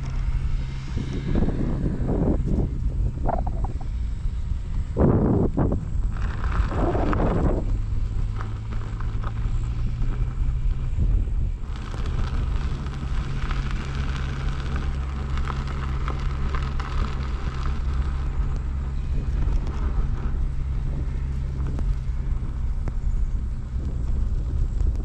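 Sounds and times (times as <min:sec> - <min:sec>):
wind buffeting microphone: 0:00.0 - 0:25.0
tyre rolling over dirt: 0:05.1 - 0:25.0.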